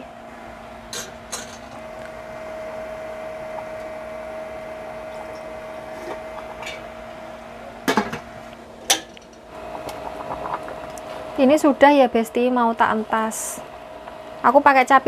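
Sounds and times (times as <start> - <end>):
constant electrical hum: 0.0 - 15.0
pot of water boiling: 0.4 - 15.0.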